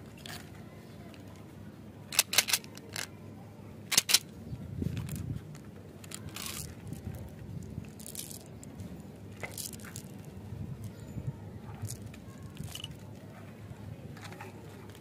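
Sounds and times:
jelly beans rattling into hand: 2.1s - 3.1s, 3.9s - 4.2s, 4.9s - 8.7s, 9.3s - 11.0s, 11.7s - 13.1s.

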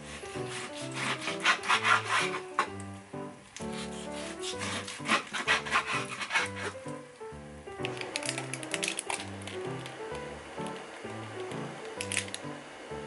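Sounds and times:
soft background music: 0.0s - 13.0s
knife cutting raw meat: 0.1s - 2.6s, 3.6s - 7.0s.

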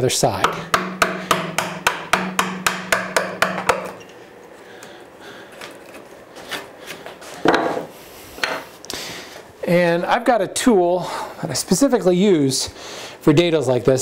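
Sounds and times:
mallet striking chisel: 0.4s - 4.0s.

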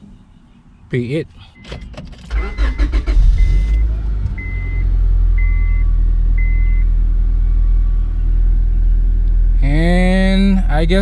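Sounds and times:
dashboard warning beeper: 1.6s - 7.0s
car engine running: 2.3s - 11.0s.

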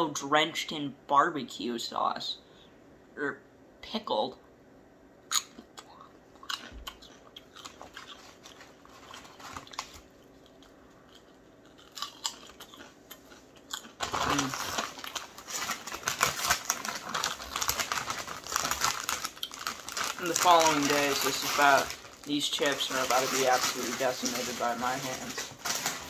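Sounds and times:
chips crunching being chewed: 5.3s - 26.0s
plastic bag crinkling: 7.6s - 26.0s.

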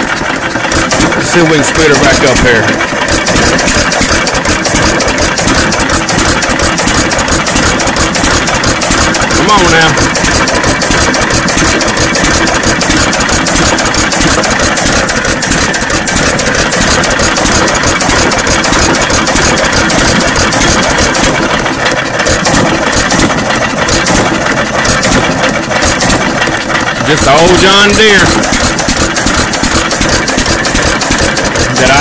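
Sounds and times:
old engine clattering: 0.0s - 32.0s.

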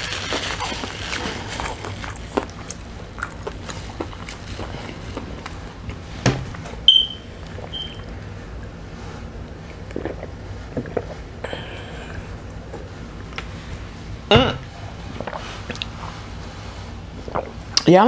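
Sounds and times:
short high beeps: 6.9s - 8.0s.

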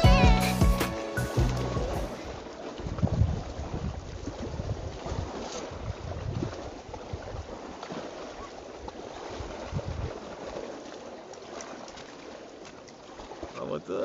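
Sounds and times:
small waves lapping: 0.8s - 14.0s
wind rumbling on microphone: 1.4s - 7.7s, 9.2s - 10.3s.

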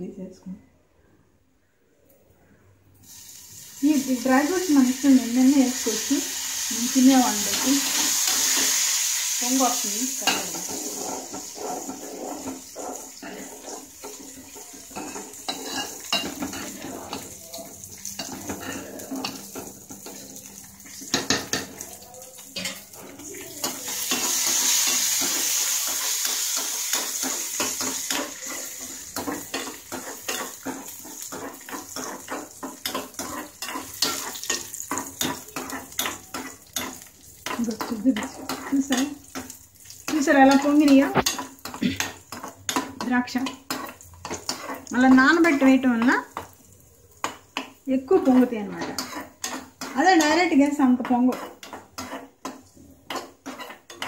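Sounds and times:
frying sizzle: 3.0s - 54.0s
spoon scraping a steel pan: 10.2s - 17.3s, 40.1s - 45.7s, 48.2s - 54.0s.

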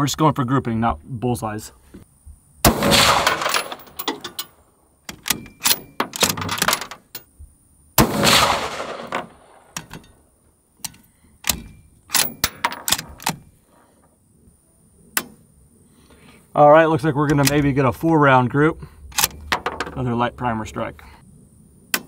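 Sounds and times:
rifle shots with echo: 2.6s - 3.9s, 8.0s - 9.8s
rifle bolt metallic clicks: 2.9s - 4.5s, 5.1s - 7.3s, 10.8s - 13.5s, 17.3s - 17.7s, 19.1s - 19.6s.

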